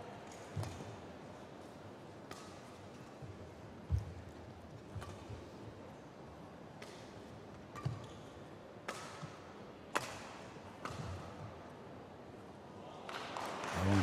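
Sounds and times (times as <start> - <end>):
faint arena murmur: 8.3 - 14.0
rackets striking shuttlecock: 8.8 - 11.4.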